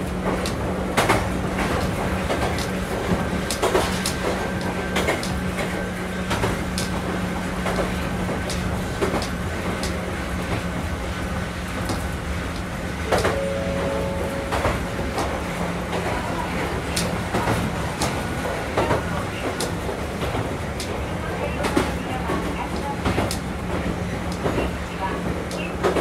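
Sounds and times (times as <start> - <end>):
train cabin hum: 0.0 - 26.0
short ringing tone: 13.1 - 15.9.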